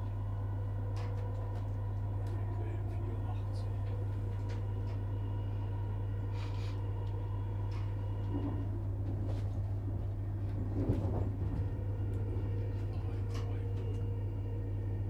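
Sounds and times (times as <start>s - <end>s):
train carriage hum and rumble: 0.0s - 15.0s.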